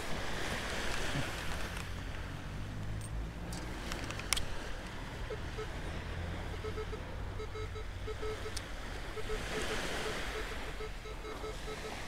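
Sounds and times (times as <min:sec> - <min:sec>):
wind and surf rumble: 0:00.0 - 0:12.0
metal detector beeps: 0:05.2 - 0:12.0.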